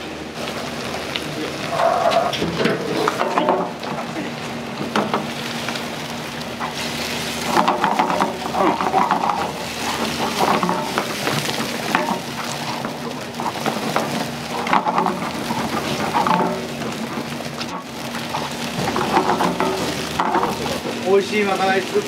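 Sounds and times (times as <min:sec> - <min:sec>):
food sizzling in hot oil: 0:00.0 - 0:22.0
utensils clinking and clattering: 0:06.6 - 0:21.8.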